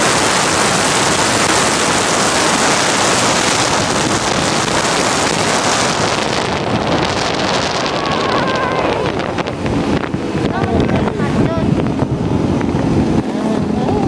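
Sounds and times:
wind rushing over microphone: 0.0 - 14.0.

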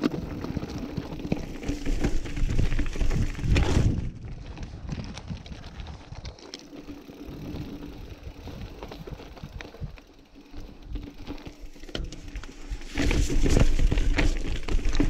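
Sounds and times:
bike rattling: 0.0 - 15.0
tyres crunching over rock: 0.0 - 15.0.

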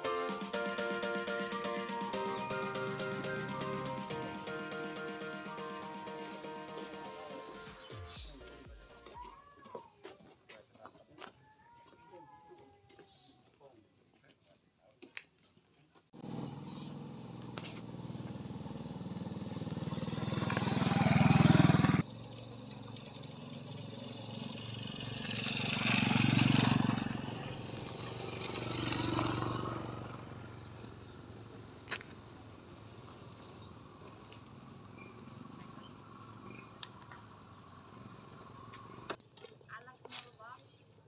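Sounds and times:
motorcycles riding past on gravel: 16.2 - 40.4.

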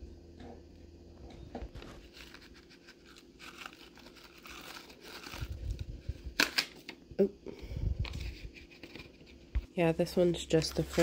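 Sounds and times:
packet crinkling and rustling: 1.7 - 7.0, 10.4 - 11.0.

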